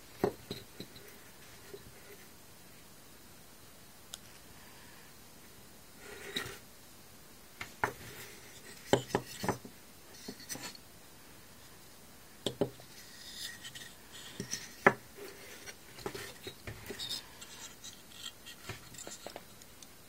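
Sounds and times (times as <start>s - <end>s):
soft rubbing and scraping: 12.8s - 19.6s.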